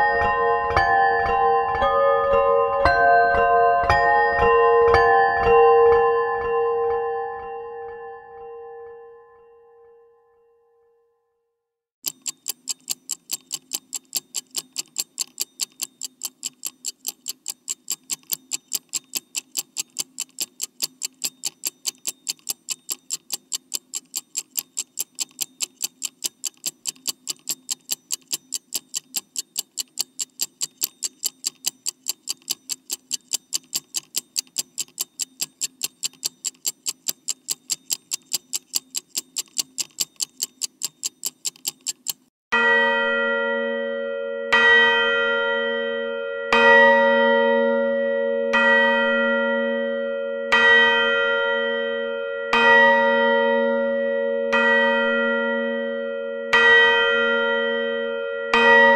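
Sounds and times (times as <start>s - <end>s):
clock ticking quickly: 12.0s - 42.3s.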